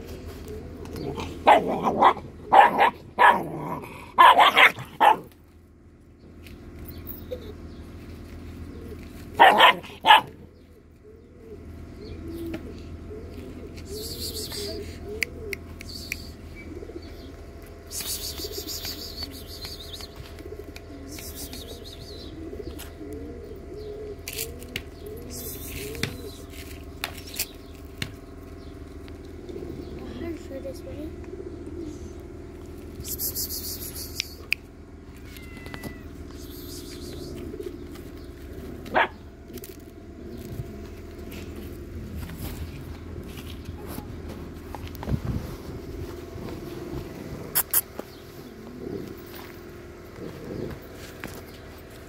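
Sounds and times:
dog barking: 1.4 - 3.5, 4.2 - 5.3, 9.4 - 10.4, 38.9 - 39.2
faint bird chirping: 10.5 - 24.2.

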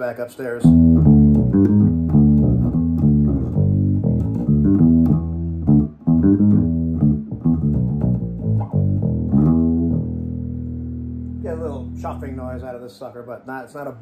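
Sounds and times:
electric bass guitar notes: 0.6 - 12.8.

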